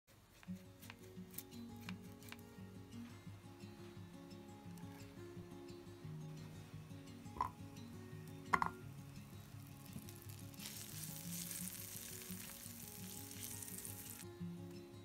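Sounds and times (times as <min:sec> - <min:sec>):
quiet background music: 0:00.1 - 0:15.0
butter sizzling in a pan: 0:09.3 - 0:14.2.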